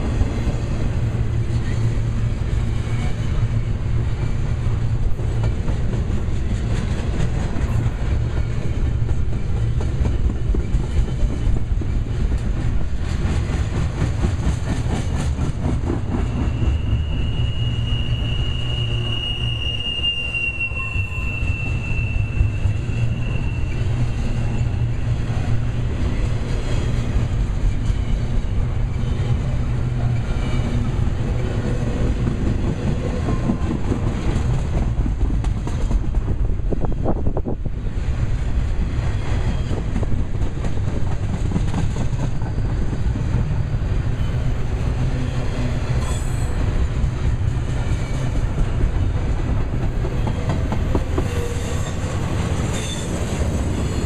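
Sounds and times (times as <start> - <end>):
train wheels rumbling on rail: 0.0 - 54.0
high wheel squeal: 16.2 - 25.2, 50.9 - 54.0.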